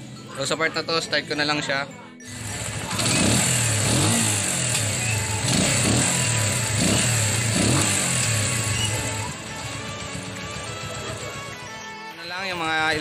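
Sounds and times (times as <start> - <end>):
motorcycle engine running: 2.3 - 11.6.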